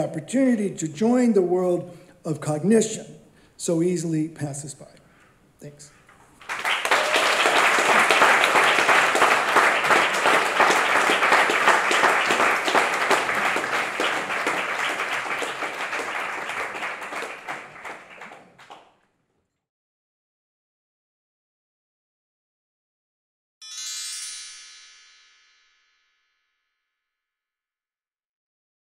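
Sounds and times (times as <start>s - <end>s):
audience applauding: 6.3s - 18.9s.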